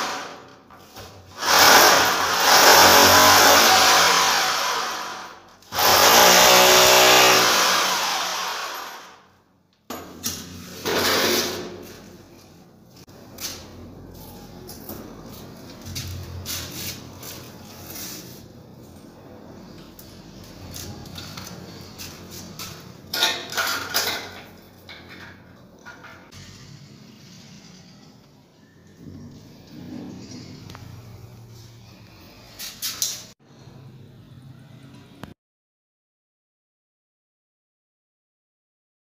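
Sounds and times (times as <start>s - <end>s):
electric drill boring into ceiling: 1.3s - 9.3s.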